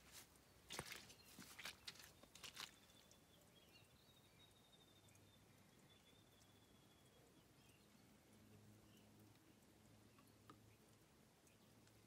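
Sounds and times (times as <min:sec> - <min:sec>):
soft rustles: 0:00.0 - 0:02.9.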